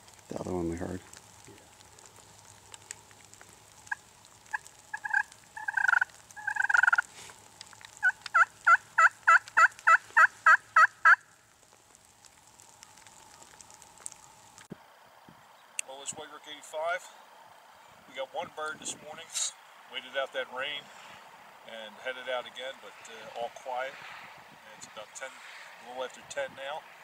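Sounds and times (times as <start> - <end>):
turkey yelping: 3.9 - 7.1, 8.0 - 11.3.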